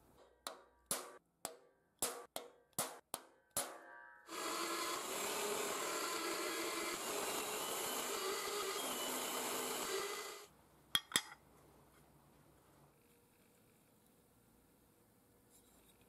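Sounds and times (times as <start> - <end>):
drill press boring into steel: 4.3 - 10.5.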